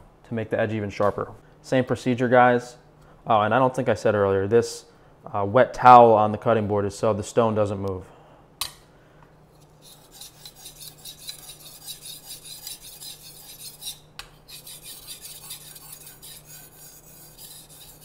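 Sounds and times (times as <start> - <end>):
knife scraping on whetstone: 9.5 - 18.0.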